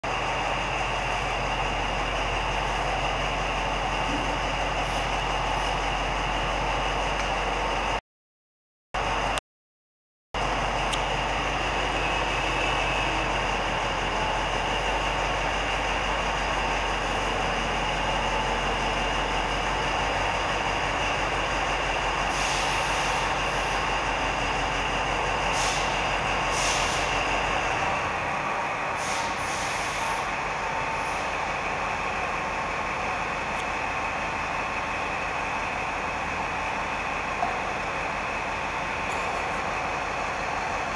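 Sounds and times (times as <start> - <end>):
truck diesel engine running: 0.0 - 8.0, 9.0 - 9.4, 10.4 - 40.9
short air hisses: 22.3 - 23.3, 25.5 - 27.2, 29.0 - 30.3.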